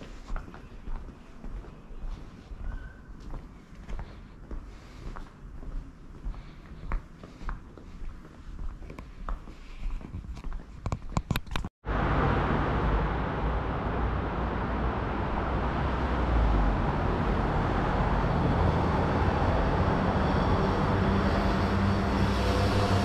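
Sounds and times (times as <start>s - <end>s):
footsteps: 0.0s - 11.7s.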